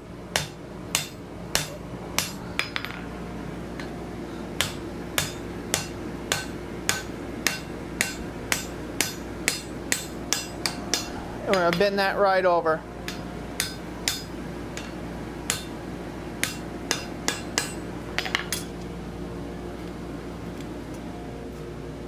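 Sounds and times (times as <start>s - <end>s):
hammer striking hot steel: 0.3s - 3.0s, 4.6s - 11.9s, 13.1s - 15.8s, 16.4s - 18.7s.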